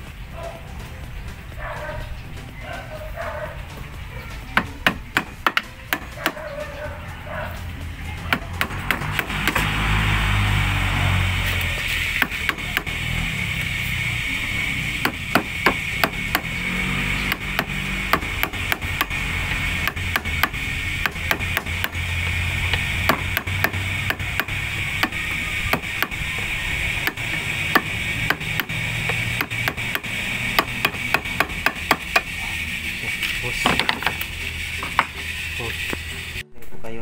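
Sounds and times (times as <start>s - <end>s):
chisel tapping into wood: 4.6s - 6.4s, 19.8s - 22.0s, 27.0s - 32.3s.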